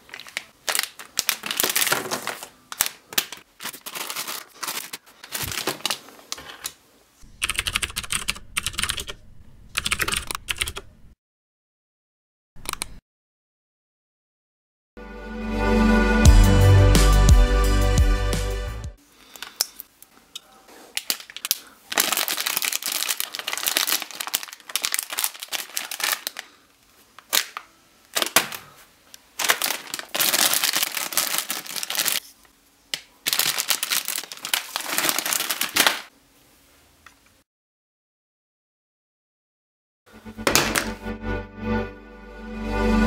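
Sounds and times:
plastic packets crinkling: 0.0 - 6.7, 20.9 - 32.4, 33.0 - 36.1.

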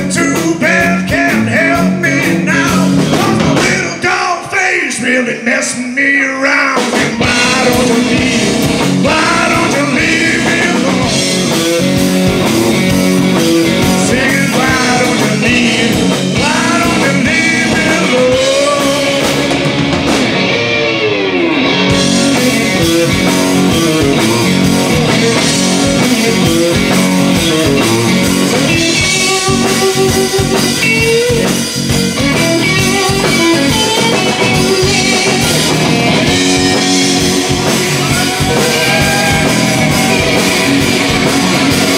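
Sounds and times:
bass guitar: 0.0 - 5.1, 6.6 - 41.9
man singing lead vocal: 0.0 - 19.7, 22.3 - 26.9, 36.5 - 40.8
drums: 0.0 - 41.9
electric guitar bending notes: 7.0 - 41.9.

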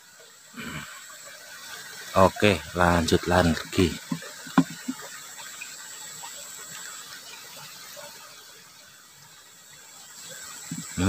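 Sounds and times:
stream flowing over ripples: 0.0 - 11.0.

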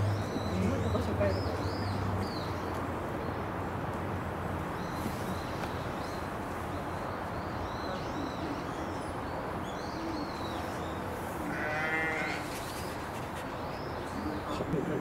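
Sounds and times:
farm animal bleating: 11.4 - 12.5.

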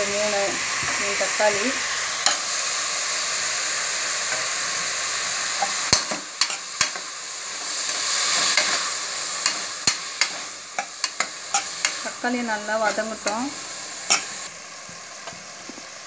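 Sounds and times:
vegetables sizzling in hot oil: 0.0 - 16.0
ladle clinking and scraping pot: 14.0 - 14.4.

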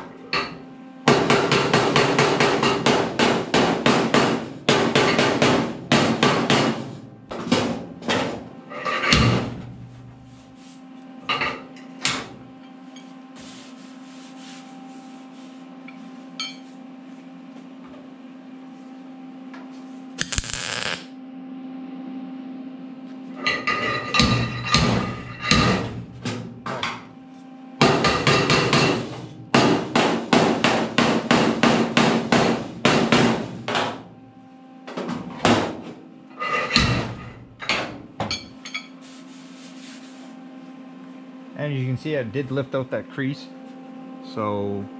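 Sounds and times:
steady low hum: 0.0 - 44.9
wire-feed welding burst: 20.2 - 21.1.

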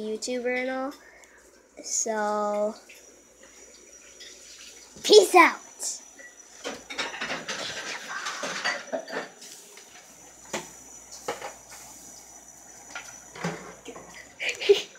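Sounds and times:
dishes and utensils clinking: 6.2 - 9.5.

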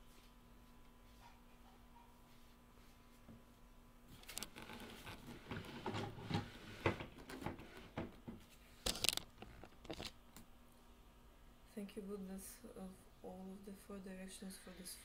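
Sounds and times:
device handling rustling: 4.1 - 5.3, 8.8 - 10.2.

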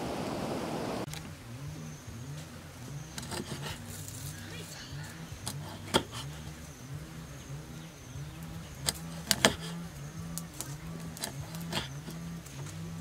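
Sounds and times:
low steady hum: 0.0 - 13.0
cleaver chopping on wooden board: 5.5 - 6.3, 8.9 - 9.7.

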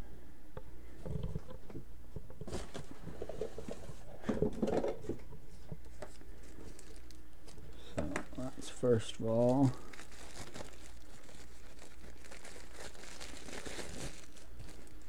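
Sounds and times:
low steady hum: 0.0 - 15.0
packaging rustling and clicking: 5.9 - 8.5, 9.3 - 15.0.

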